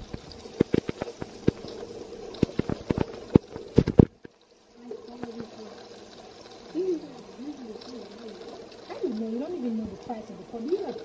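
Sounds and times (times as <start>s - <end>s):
sauce sizzling: 0.0s - 11.0s.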